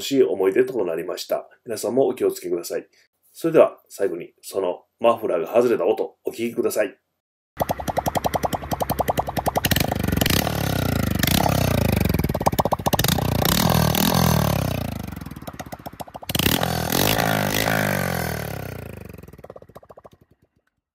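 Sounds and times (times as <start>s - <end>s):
motorcycle engine revving: 7.6s - 20.8s.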